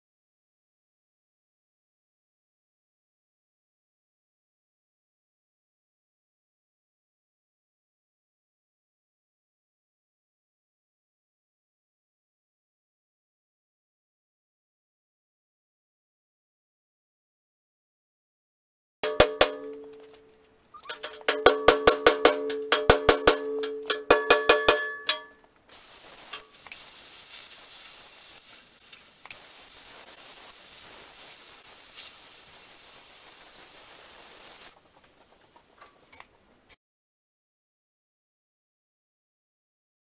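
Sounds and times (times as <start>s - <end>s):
hammer blows on steel: 19.0s - 20.3s, 20.9s - 25.4s
cutting tool hissing on metal: 25.7s - 34.8s.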